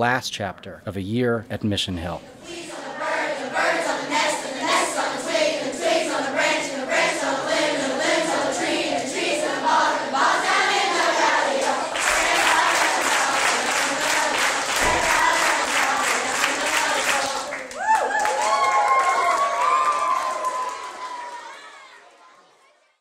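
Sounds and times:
children singing together: 2.4s - 17.6s
children clapping a beat: 11.6s - 22.2s.

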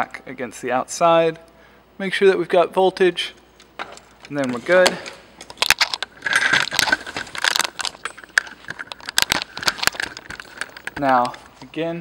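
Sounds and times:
rustling: 3.7s - 12.0s
tools clattering on wooden workbench: 3.8s - 11.6s.

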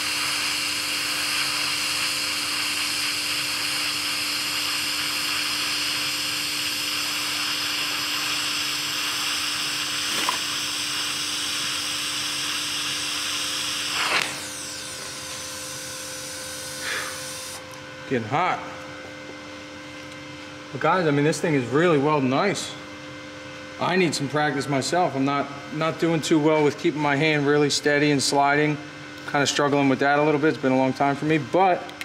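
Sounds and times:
welding arc hissing: 0.0s - 17.6s
welder hum: 0.0s - 32.0s.

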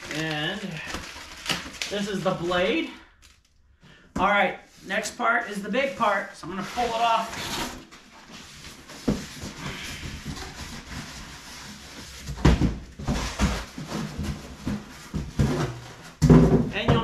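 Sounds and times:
cardboard and plastic rustling: 0.0s - 17.0s
knocks and thumps: 12.2s - 17.0s.

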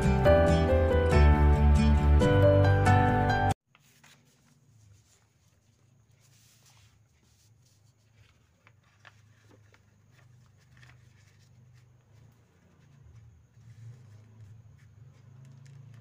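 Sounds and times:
paper rustling and folding: 3.6s - 16.0s.

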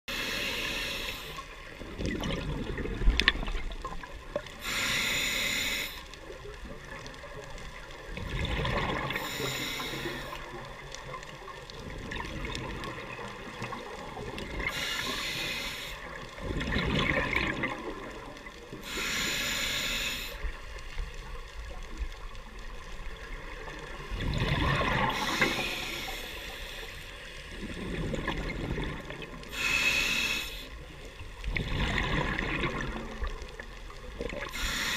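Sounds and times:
regulator inhalation hiss: 0.1s - 1.7s, 4.6s - 6.1s, 9.2s - 10.5s, 14.6s - 16.2s, 18.8s - 20.7s, 25.1s - 27.4s, 29.5s - 31.0s, 34.5s - 34.9s
gurgle of exhaled bubbles: 1.8s - 4.5s, 8.0s - 9.4s, 11.8s - 14.8s, 16.4s - 18.5s, 23.2s - 25.7s, 27.6s - 29.5s, 31.4s - 34.6s.

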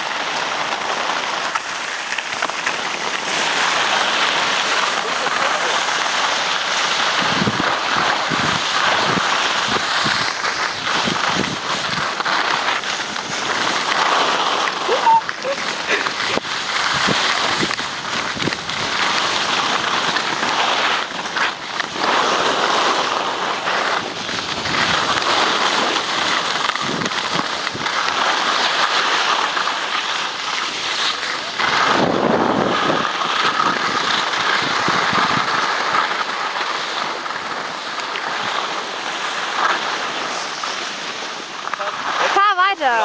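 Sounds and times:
skis scraping on snow: 0.0s - 43.0s
wind rushing over microphone: 6.3s - 19.0s, 31.5s - 35.6s.

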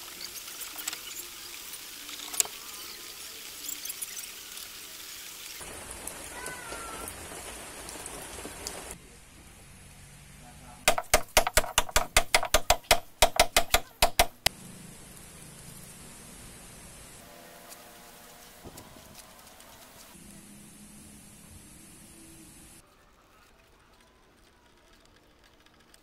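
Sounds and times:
hammer striking metal: 10.9s - 14.5s.

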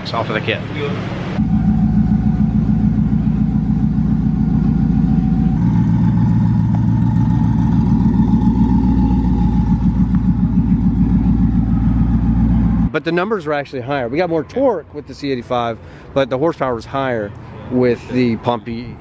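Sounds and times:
car engine idling: 1.4s - 13.0s.

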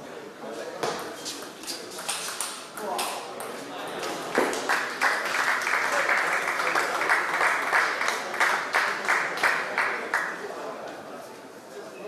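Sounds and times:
crowd applauding: 4.3s - 10.4s.

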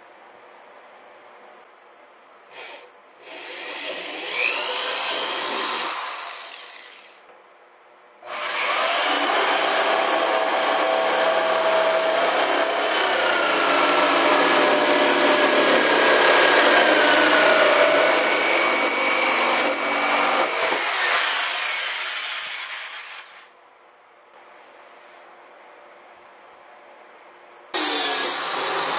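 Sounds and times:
electric jigsaw cutting plastic: 2.5s - 7.2s, 8.3s - 23.5s, 27.8s - 28.9s.

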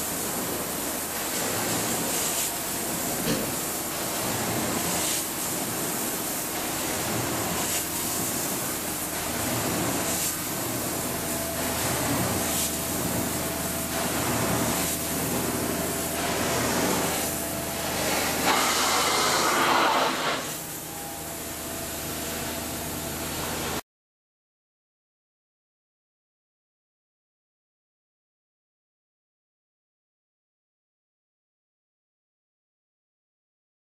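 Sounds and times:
carpet cleaning vacuum suction: 0.0s - 23.8s.

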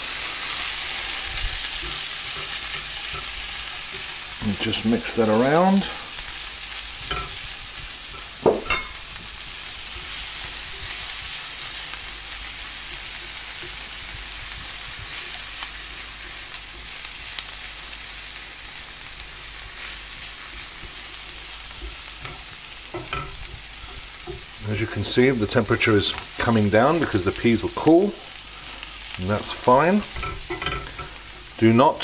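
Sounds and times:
food sizzling in a frying pan: 0.0s - 32.0s.

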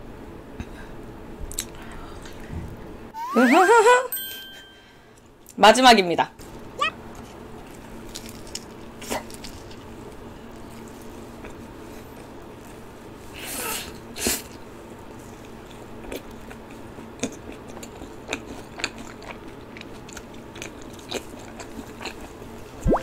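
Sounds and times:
crunchy chewing: 14.4s - 22.6s.

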